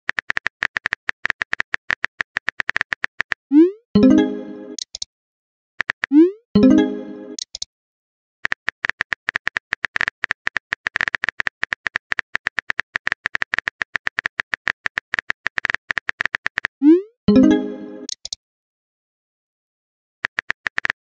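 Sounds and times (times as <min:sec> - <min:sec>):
phone keyboard typing clicks: 0:00.1 - 0:03.4, 0:04.8 - 0:05.1, 0:07.4 - 0:07.7, 0:08.4 - 0:16.7, 0:18.1 - 0:18.4, 0:20.2 - 0:21.0
chiming message tone: 0:04.0 - 0:04.8, 0:06.6 - 0:07.4, 0:17.3 - 0:18.1.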